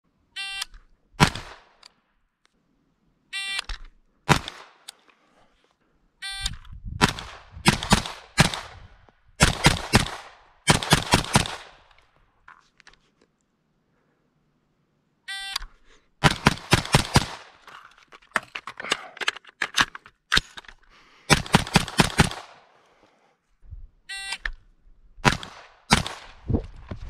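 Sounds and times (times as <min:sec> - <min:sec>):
rifle gunshots: 0:01.2 - 0:01.7, 0:04.3 - 0:04.8, 0:07.0 - 0:08.8, 0:09.4 - 0:11.8, 0:16.2 - 0:17.6, 0:21.3 - 0:22.6, 0:25.2 - 0:26.4.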